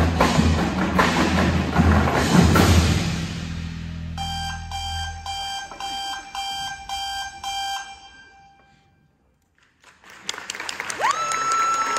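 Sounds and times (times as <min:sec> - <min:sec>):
alarm clock beeping: 0:04.2 - 0:08.8.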